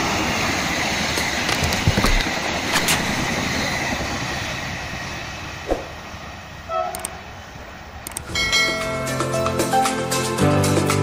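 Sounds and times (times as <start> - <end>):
passenger train rolling past: 0.0 - 11.0
short clicks: 6.9 - 7.2, 8.0 - 8.3.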